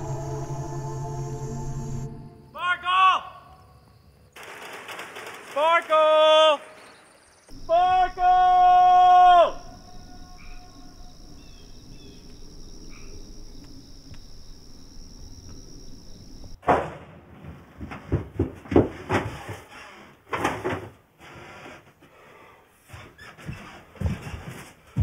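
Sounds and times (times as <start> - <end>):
high insect drone: 0.0 - 2.9, 6.9 - 16.6
irregular knocks and bumps: 16.6 - 19.7, 23.0 - 25.0.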